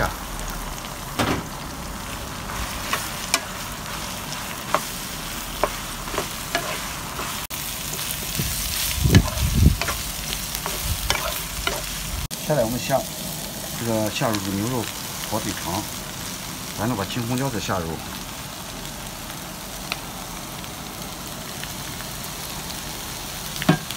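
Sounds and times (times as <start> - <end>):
eggplant sizzling in hot oil: 0.0 - 23.9
wooden spatula scraping a pan: 4.6 - 11.9.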